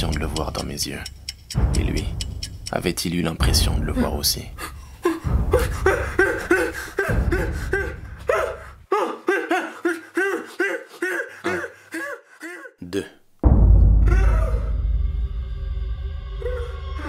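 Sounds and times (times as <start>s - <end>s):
person laughing: 3.6s - 12.7s.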